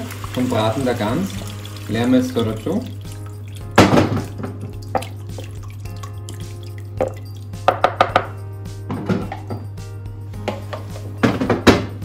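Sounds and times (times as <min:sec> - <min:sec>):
juices dripping into a pot: 0:00.0 - 0:08.4.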